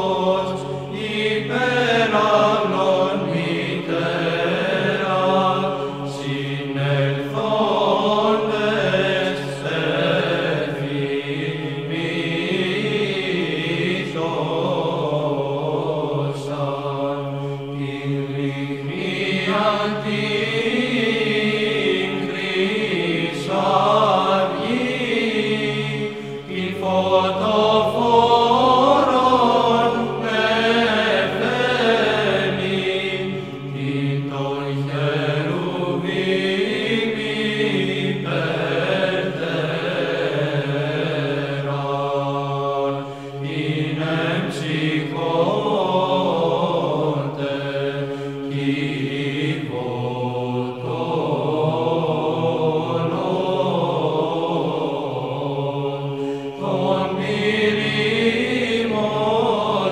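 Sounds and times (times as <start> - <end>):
chant with winding melody: 0.0 - 59.9
low held vocal drone: 0.0 - 59.9.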